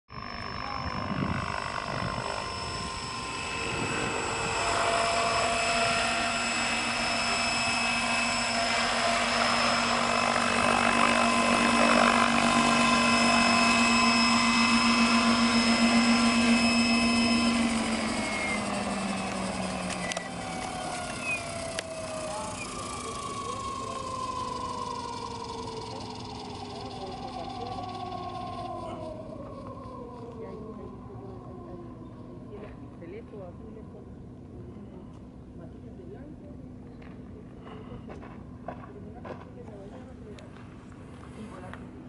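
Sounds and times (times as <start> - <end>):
model helicopter rotor: 0.1 - 42.0.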